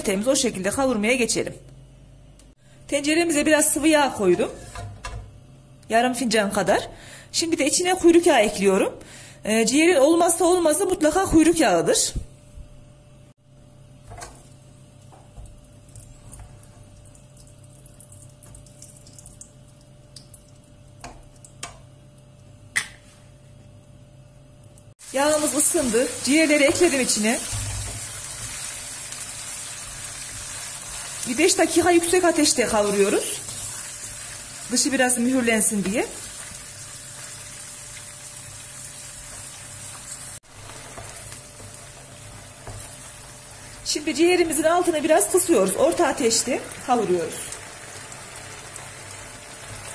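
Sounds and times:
meat sizzling in hot oil: 0:25.0 - 0:44.6, 0:45.2 - 0:49.9.

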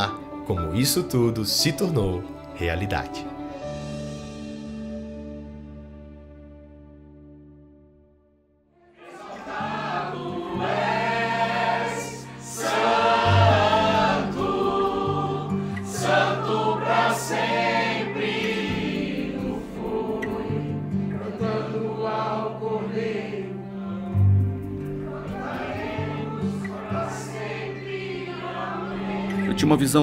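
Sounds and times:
group singing worship song: 0:08.8 - 0:29.8.

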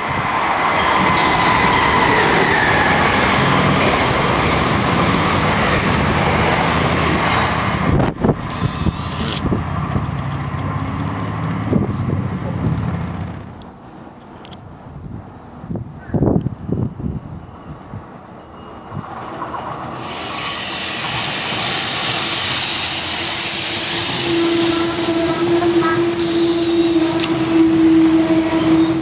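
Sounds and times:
train wheels rumbling on rail: 0:00.0 - 0:29.0
high electric whine: 0:01.0 - 0:02.0, 0:08.5 - 0:09.4, 0:13.2 - 0:19.6.

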